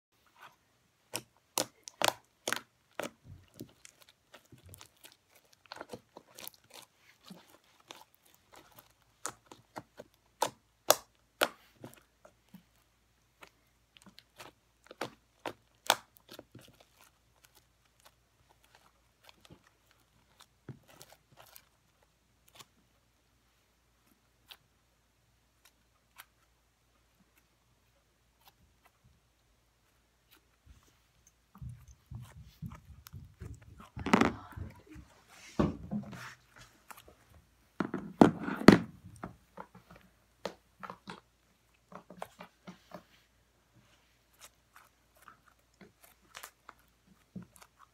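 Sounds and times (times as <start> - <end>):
foam bead slime crunching: 1.1 - 12.0.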